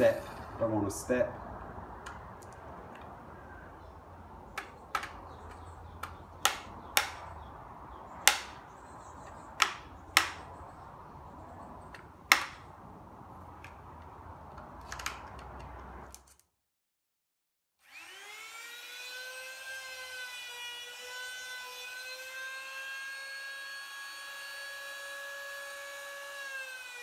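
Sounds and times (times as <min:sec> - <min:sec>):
screwdriver clicks and knocks: 0:04.6 - 0:07.3, 0:08.2 - 0:08.6, 0:09.3 - 0:10.4, 0:11.9 - 0:12.6.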